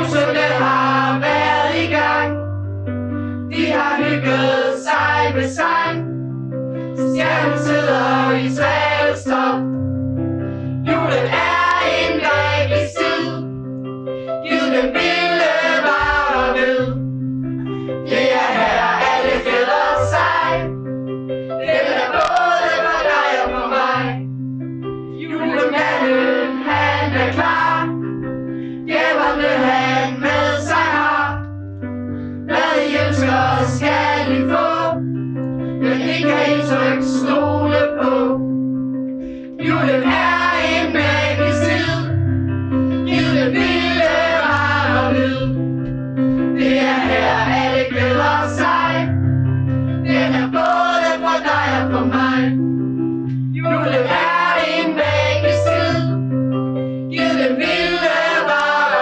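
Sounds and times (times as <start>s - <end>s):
children and adults singing together: 0.0s - 2.4s, 3.5s - 6.1s, 7.0s - 9.7s, 10.9s - 13.5s, 14.4s - 17.0s, 18.0s - 20.7s, 21.6s - 24.2s, 25.2s - 28.0s, 28.8s - 31.4s, 32.5s - 35.0s, 35.8s - 38.4s, 39.6s - 42.1s, 43.0s - 45.6s, 46.6s - 49.1s, 50.1s - 52.6s, 53.6s - 56.1s, 57.1s - 59.0s.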